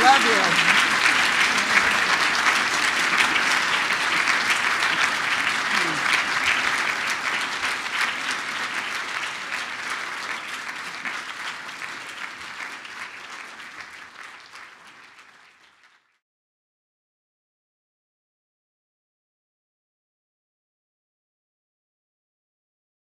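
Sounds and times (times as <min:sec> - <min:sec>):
audience applauding: 0:00.0 - 0:16.2.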